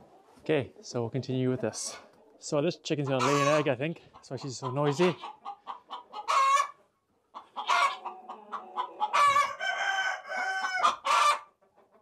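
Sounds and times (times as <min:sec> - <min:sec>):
hen squawking: 0:03.1 - 0:03.7, 0:04.3 - 0:06.7.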